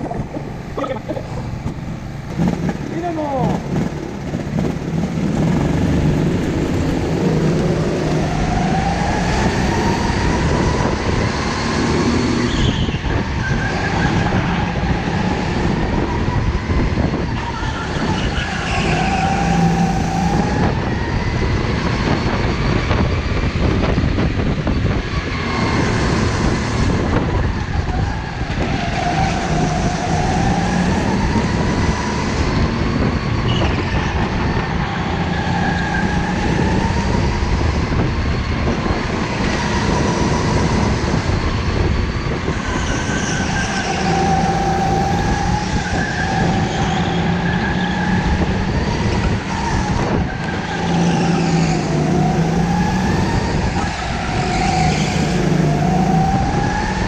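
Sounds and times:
go-kart motor revving: 0.0s - 12.5s
other go-karts racing: 0.0s - 57.0s.

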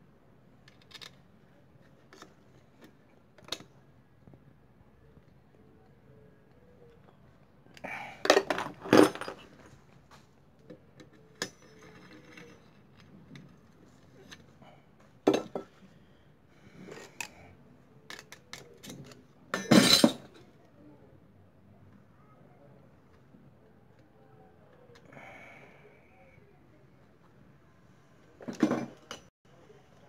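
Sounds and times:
metal tools clattering on engine: 19.5s - 20.3s.

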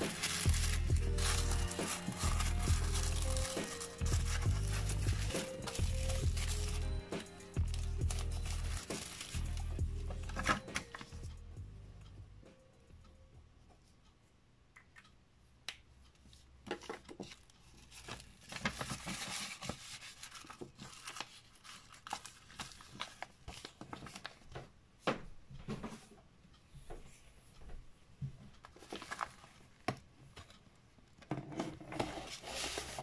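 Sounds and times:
paper envelope rustling: 0.0s - 11.1s, 17.7s - 24.4s, 28.7s - 29.8s, 31.9s - 33.0s.

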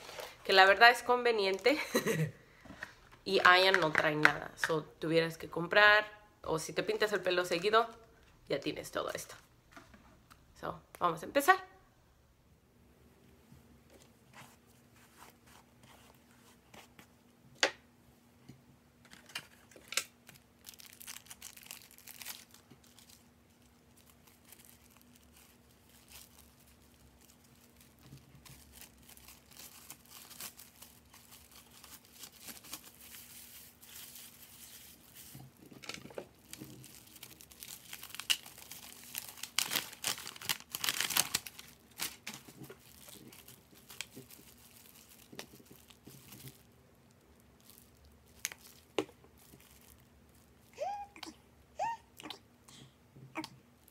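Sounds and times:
rustling and crinkling packaging: 0.0s - 2.1s, 19.0s - 51.1s.

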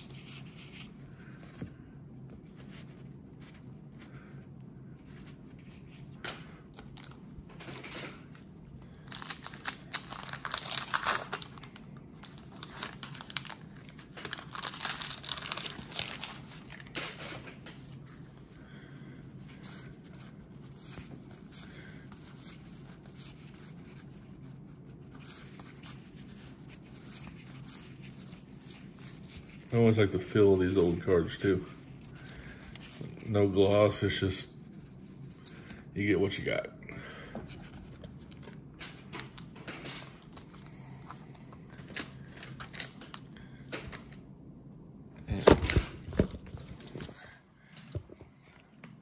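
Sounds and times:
paper wrapper tearing and crinkling: 9.0s - 17.8s, 41.8s - 43.3s.

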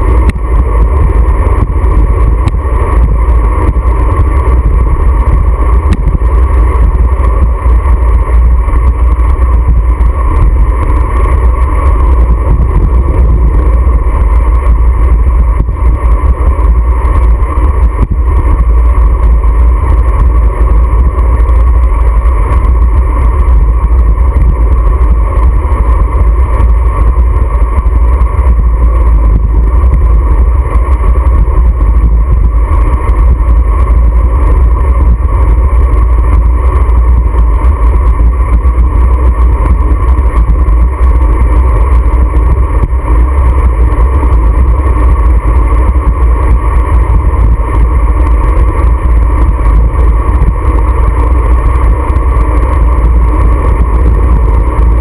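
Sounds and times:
wind buffeting microphone: 0.0s - 55.0s.

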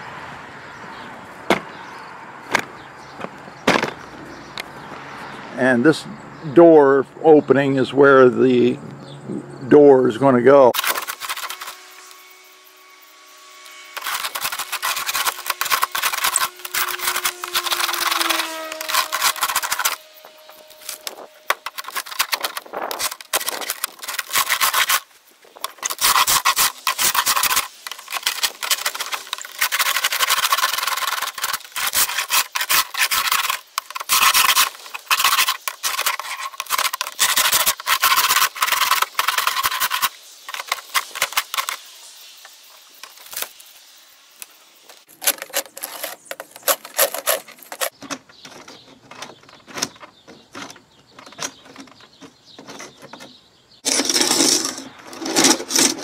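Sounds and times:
hand scraper scraping putty: 10.7s - 12.2s, 13.6s - 41.9s, 45.1s - 56.0s.

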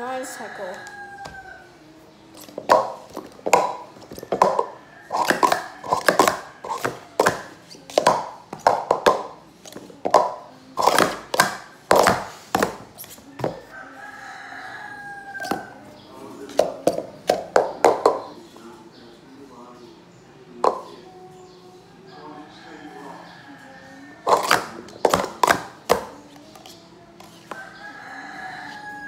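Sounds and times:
plastic cups clacking on a mat: 2.4s - 13.7s, 15.4s - 15.7s, 16.5s - 18.4s, 20.6s - 20.9s, 24.3s - 27.6s.

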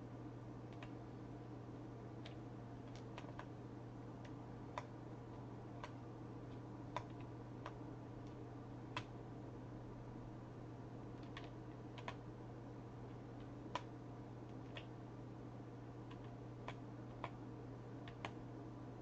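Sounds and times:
steady low hum: 0.0s - 19.0s
computer key clicks: 2.2s - 3.5s, 5.8s - 7.8s, 11.2s - 12.2s, 14.6s - 14.9s, 18.0s - 18.4s.

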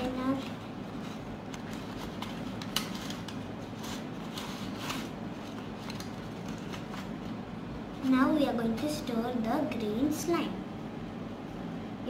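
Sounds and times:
low background hum: 0.0s - 12.0s
foil crinkling: 0.3s - 7.4s.

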